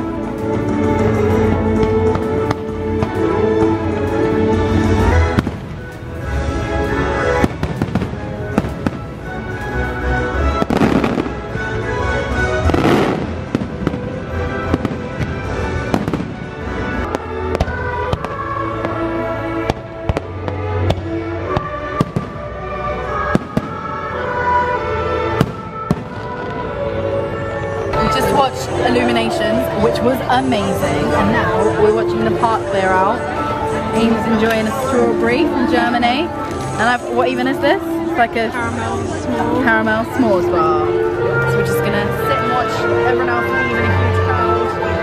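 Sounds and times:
music playing: 0.0 - 45.0
fireworks bursting: 5.0 - 6.4, 7.3 - 9.8, 10.5 - 11.8, 12.6 - 24.6, 25.3 - 26.9.

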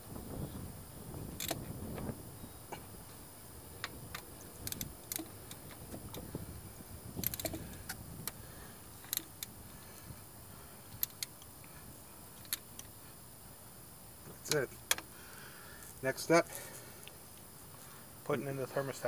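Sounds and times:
hand ratchet clicking: 1.4 - 1.6, 4.1 - 6.2, 7.2 - 8.0, 11.0 - 11.4.

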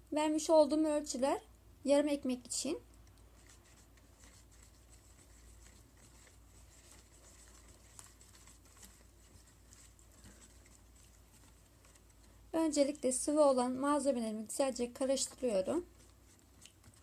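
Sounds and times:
whisk scraping a plastic bowl: 3.4 - 13.2.

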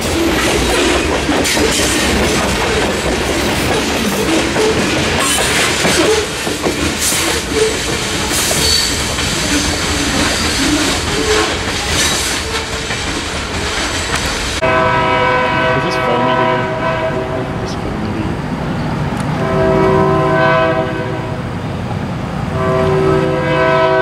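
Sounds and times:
train wheels clattering over rails: 0.0 - 14.6
locomotive air horn chord: 14.6 - 17.8, 19.4 - 21.4, 22.6 - 24.0.

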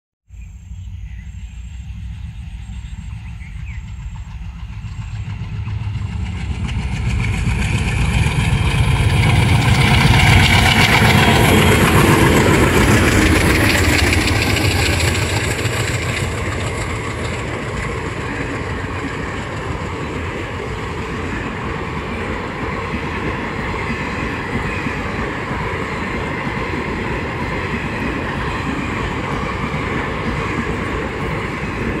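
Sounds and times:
diesel locomotive engines: 0.4 - 32.0
wheel-on-rail noise: 1.0 - 32.0.

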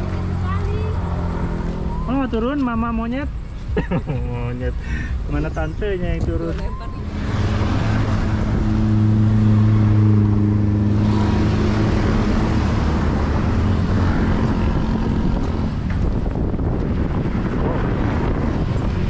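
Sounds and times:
outdoor background noise: 0.0 - 19.0
vehicle engine humming: 0.0 - 19.0.

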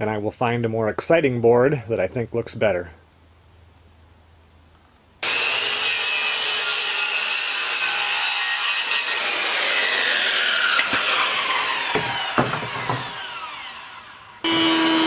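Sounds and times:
power tool cutting wood: 5.2 - 15.0.

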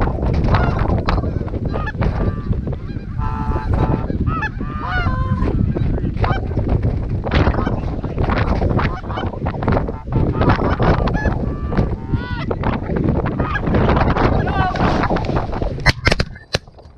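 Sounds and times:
wind rumble on microphone: 0.0 - 16.9
geese honking: 0.5 - 6.6, 7.4 - 12.6, 13.3 - 15.2.

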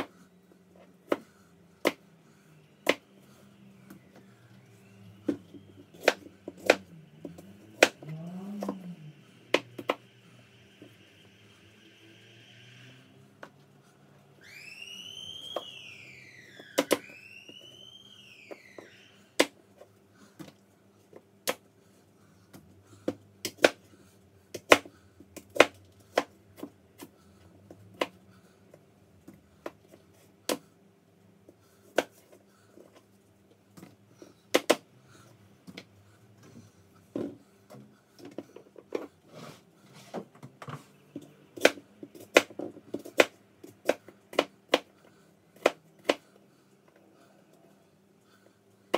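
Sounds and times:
faint steady hum: 0.0 - 48.9
gliding whistle: 2.5 - 13.4, 14.2 - 19.4.

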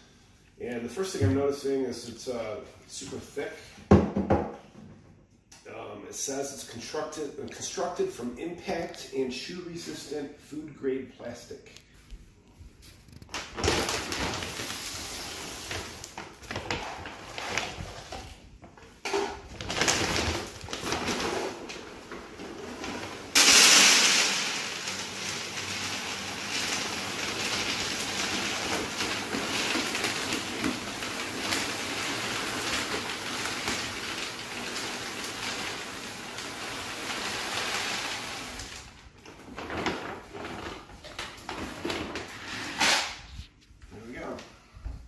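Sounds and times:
dry kibble pouring into plastic container: 19.8 - 38.9.

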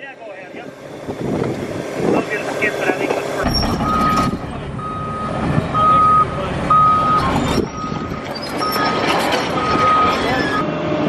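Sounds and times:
diesel machinery running: 0.0 - 11.0
backup alarm beeping: 3.5 - 10.6.

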